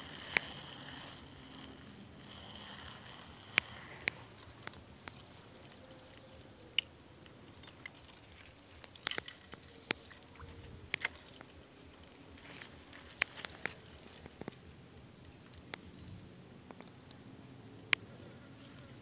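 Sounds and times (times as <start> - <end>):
fishing reel clicks and knocks: 0.0 - 8.2.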